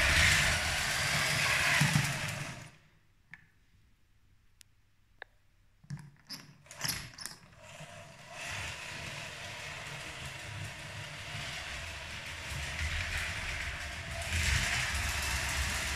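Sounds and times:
toy train motor whirring: 0:00.0 - 0:02.8, 0:06.7 - 0:15.9.

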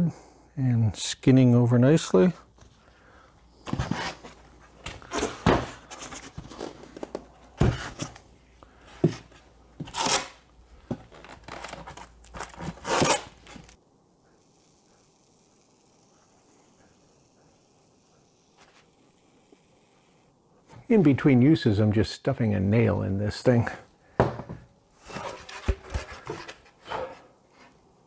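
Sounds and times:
tape pulled and torn: 0:09.8 - 0:10.4, 0:11.1 - 0:13.8.

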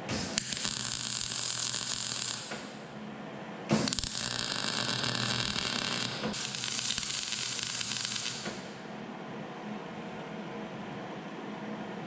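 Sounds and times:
welding arc crackling and hissing: 0:00.0 - 0:02.8, 0:03.8 - 0:08.8.

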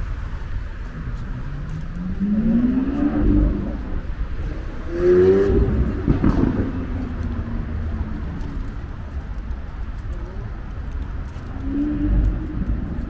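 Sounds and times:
traffic rumble: 0:00.0 - 0:13.0
vehicle engine accelerating past: 0:01.1 - 0:08.6.

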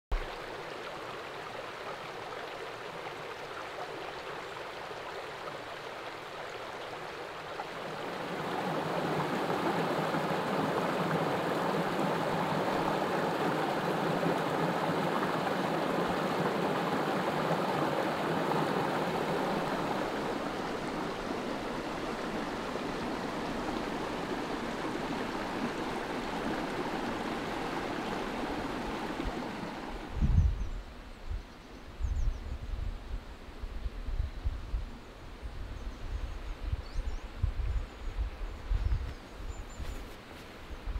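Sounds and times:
stream rushing over stones: 0:00.1 - 0:30.2.

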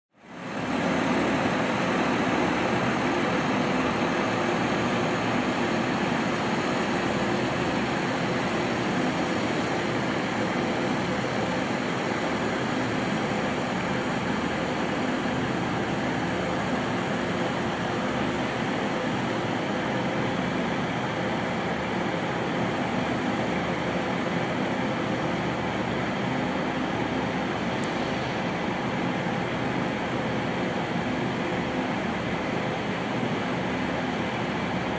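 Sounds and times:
diesel locomotive idling: 0:00.3 - 0:34.9.

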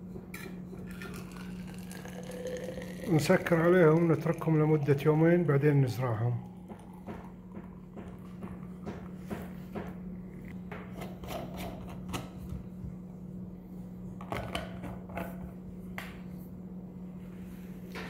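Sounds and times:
steady low hum: 0:00.0 - 0:18.0.

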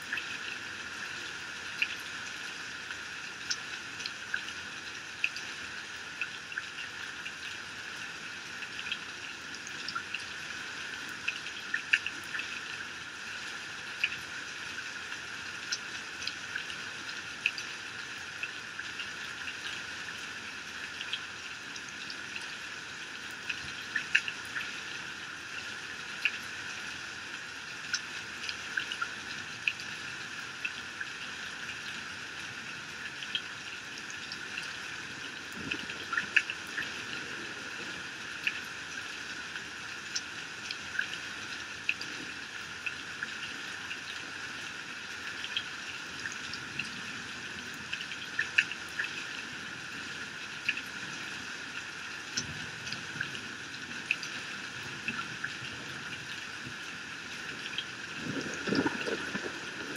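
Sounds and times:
heavy rain: 0:35.1 - 0:39.0, 0:54.9 - 0:59.9.

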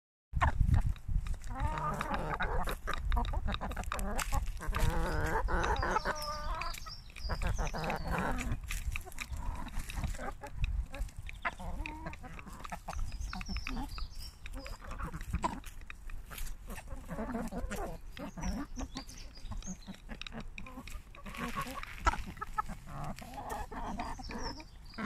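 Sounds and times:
chickens clucking: 0:00.4 - 0:25.0.

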